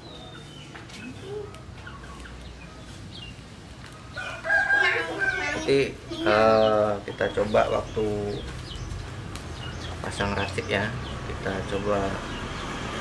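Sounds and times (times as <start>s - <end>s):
rooster crowing: 4.2s - 5.9s.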